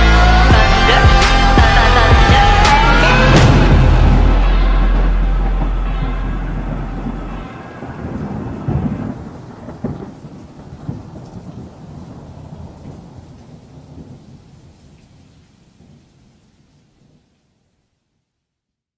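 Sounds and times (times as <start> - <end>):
rolling thunder: 0.5 - 15.0
sharp thunder cracks: 1.6 - 14.2.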